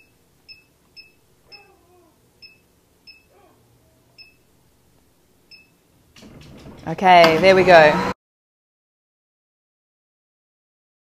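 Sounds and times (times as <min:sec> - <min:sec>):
blender control panel beeps: 0:02.4 - 0:03.3, 0:04.2 - 0:04.4, 0:05.5 - 0:05.8.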